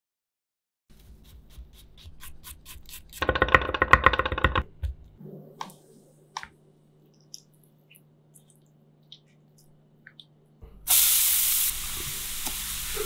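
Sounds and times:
knife chopping on wooden board: 0:00.9 - 0:05.1.

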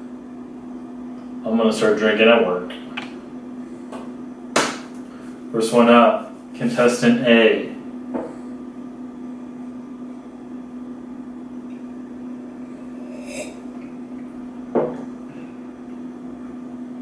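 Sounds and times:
steady low hum: 0:00.0 - 0:17.0
slurping sip from glass: 0:12.8 - 0:13.7
glass knocking on table: 0:14.7 - 0:15.0.

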